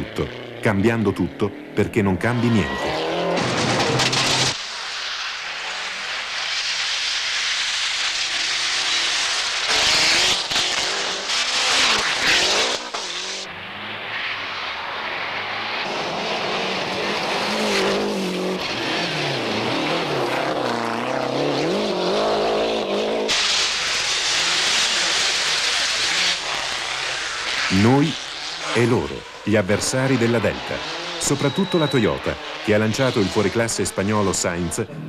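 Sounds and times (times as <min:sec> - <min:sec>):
rally car engines revving: 0:00.0 - 0:04.6, 0:08.2 - 0:35.0
tyres hissing on gravel: 0:03.6 - 0:13.5, 0:23.3 - 0:34.4.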